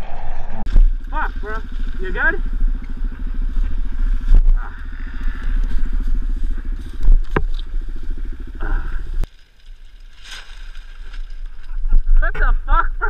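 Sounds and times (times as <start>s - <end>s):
dirt bike engine idling: 0.7s - 9.3s.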